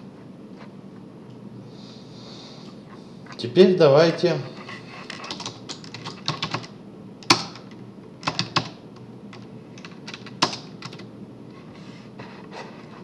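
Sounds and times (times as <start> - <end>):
typing on computer keyboard: 5.2 - 11.1.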